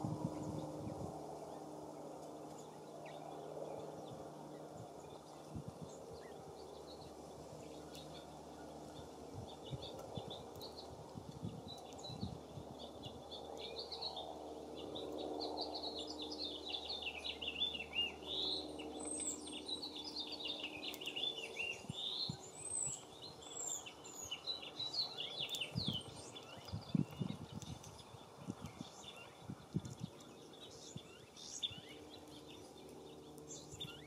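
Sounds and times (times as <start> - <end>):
songbirds singing and chirping: 0.0 - 34.0.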